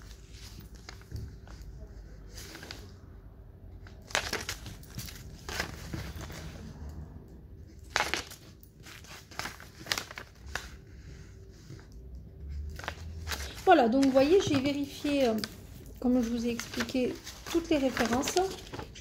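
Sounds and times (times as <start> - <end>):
paper rustling: 0.0 - 3.0, 3.8 - 6.7, 7.7 - 19.0.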